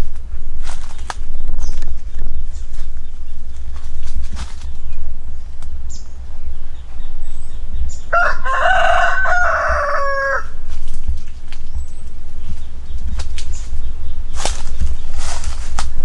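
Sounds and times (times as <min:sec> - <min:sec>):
steady low rumble: 0:00.0 - 0:16.0
rooster crowing: 0:08.0 - 0:10.7.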